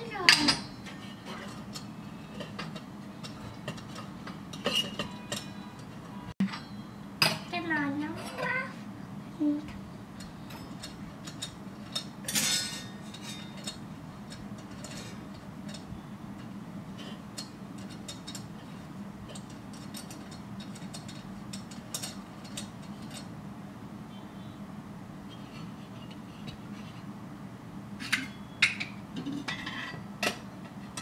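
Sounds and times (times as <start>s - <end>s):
metal toy pots clinking: 0.0s - 7.4s.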